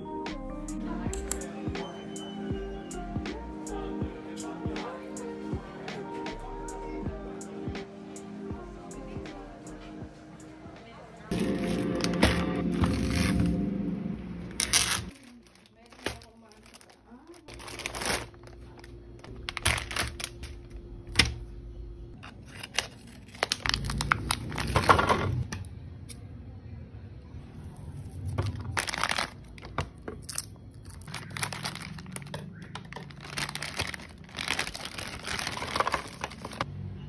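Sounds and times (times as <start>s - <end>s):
plastic packaging crinkling: 11.3s - 13.6s, 14.5s - 21.2s, 22.2s - 25.3s, 28.3s - 36.7s
steady low hum: 18.3s - 22.2s.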